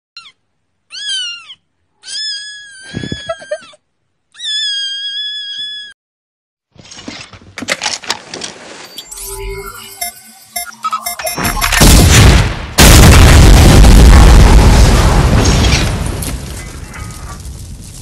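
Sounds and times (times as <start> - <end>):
kitten meowing: 0.2 - 3.7, 4.4 - 6.0
dense crackling noise: 9.9 - 18.0.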